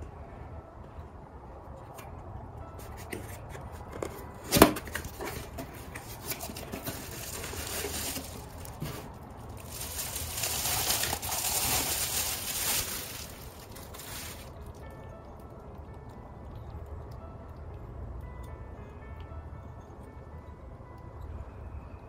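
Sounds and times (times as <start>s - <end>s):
bubble wrap rustling: 4.5s - 14.8s.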